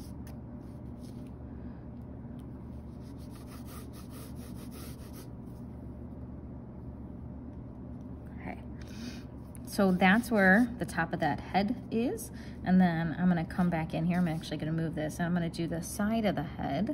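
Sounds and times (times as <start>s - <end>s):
steady low hum: 0.0s - 16.9s
pencil scratching on paper: 2.9s - 5.3s.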